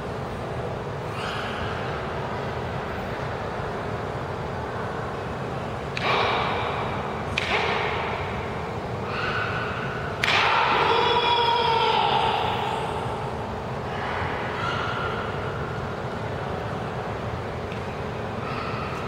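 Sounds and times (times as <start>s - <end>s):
steady hall hum: 0.0s - 19.0s
sharp held shouts: 9.0s - 13.4s.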